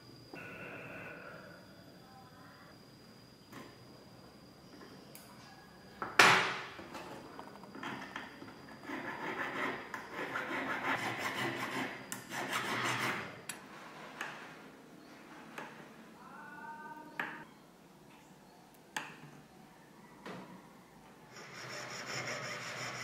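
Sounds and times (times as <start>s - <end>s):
needle file rasping on metal: 8.8s - 13.3s, 21.3s - 23.0s.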